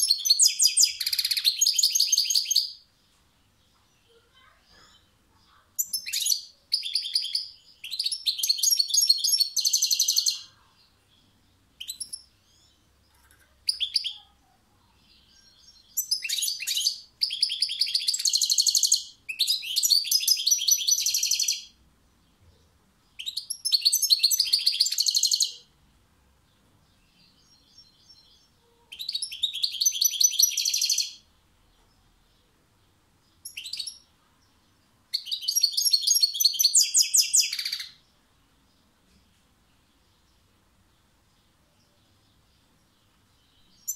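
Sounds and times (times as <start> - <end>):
goldfinch twittering song: 11.2 - 14.2, 27.0 - 31.2, 33.3 - 34.1, 35.1 - 38.0.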